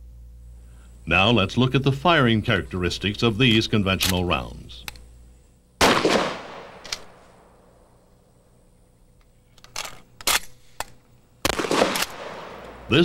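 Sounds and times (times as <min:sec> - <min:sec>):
shotgun shot: 0:05.8 - 0:07.6, 0:11.4 - 0:13.0.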